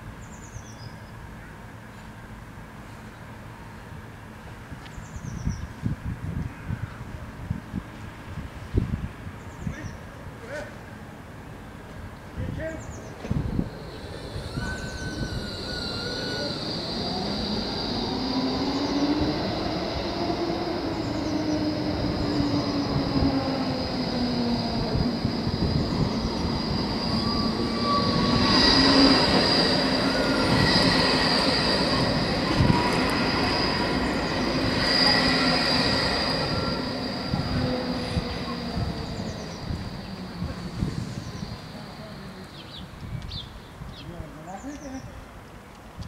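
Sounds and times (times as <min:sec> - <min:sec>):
tram motor whine and rail rumble: 0:10.1 - 0:43.3.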